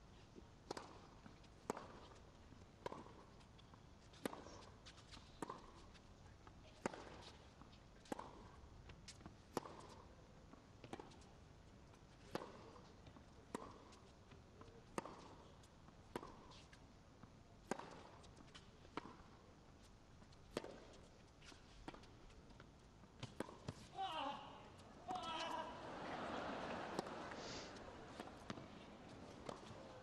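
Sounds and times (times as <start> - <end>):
tennis ball bouncing: 0.7 - 1.1, 2.8 - 3.2, 9.2 - 10.0, 12.2 - 14.0, 14.9 - 15.4, 16.1 - 16.7, 17.6 - 19.4, 20.2 - 30.0
racket striking tennis ball: 23.2 - 30.0.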